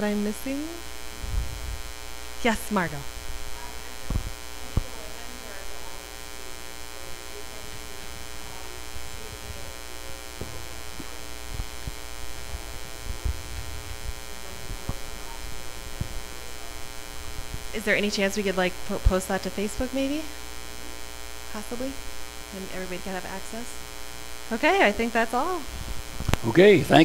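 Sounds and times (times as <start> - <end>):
electrical mains hum: 0.0 - 27.0
low thumps: 2.8 - 4.9, 10.3 - 18.0.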